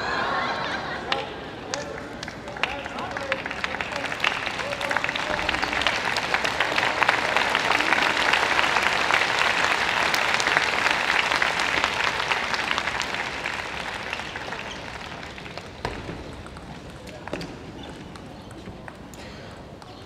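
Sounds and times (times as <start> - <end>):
crowd applauding: 0.0 - 16.0.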